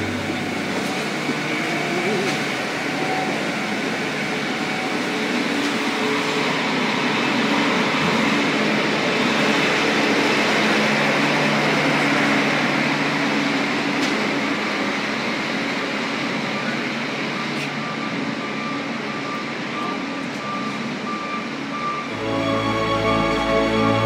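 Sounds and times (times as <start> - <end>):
busy city street traffic: 0.0 - 24.0.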